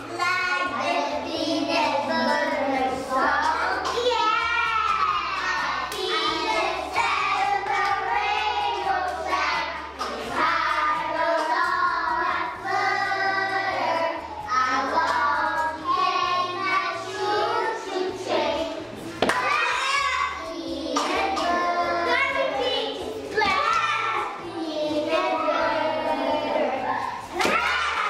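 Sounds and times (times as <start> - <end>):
children singing in unison: 0.0 - 28.0.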